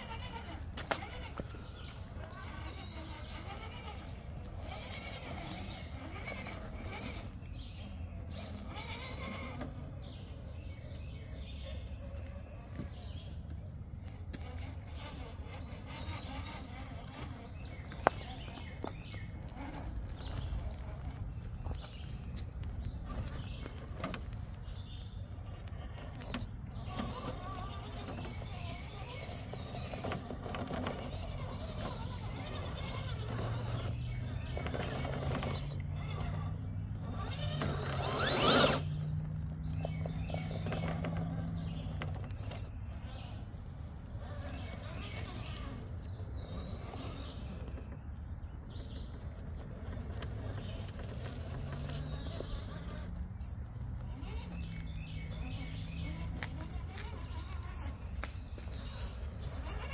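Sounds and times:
birds chirping: 0:00.0 - 0:59.9
tyres scraping on rock: 0:12.7 - 0:59.9
electric toy truck motor running: 0:28.3 - 0:39.4
small electric motor whining: 0:37.0 - 0:39.4.

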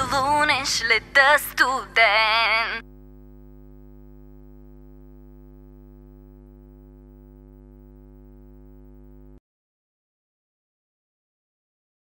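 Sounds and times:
buzzy low hum: 0:02.8 - 0:09.4.

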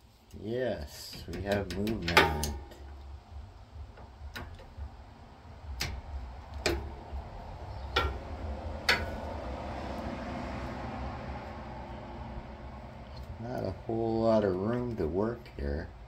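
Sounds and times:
socket wrench clicking: 0:05.7 - 0:09.5.

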